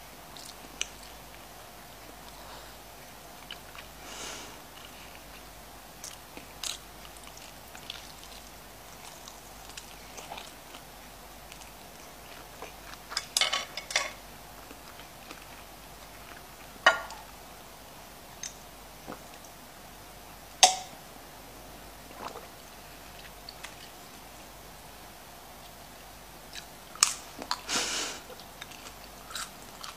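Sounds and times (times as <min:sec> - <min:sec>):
chopsticks tapping a frying pan: 0:20.6 - 0:20.9.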